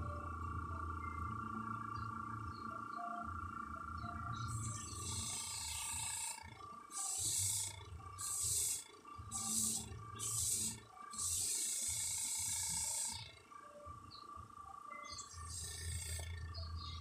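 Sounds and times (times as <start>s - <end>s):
airbrush hissing bursts: 7.0s - 11.9s.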